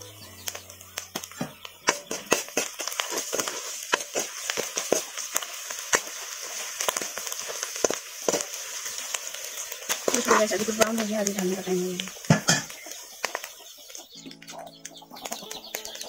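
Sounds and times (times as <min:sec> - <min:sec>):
onions sizzling in oil: 0:00.0 - 0:16.0
metal spatula scraping pan: 0:01.2 - 0:09.0.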